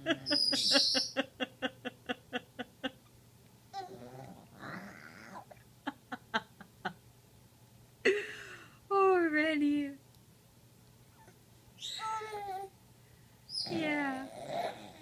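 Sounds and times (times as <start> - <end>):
baby grunting: 14.2 - 15.0.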